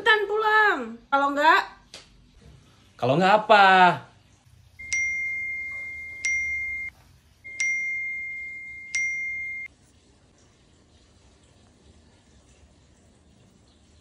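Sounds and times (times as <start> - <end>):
phone notification chime: 4.8 - 6.9, 7.5 - 9.7.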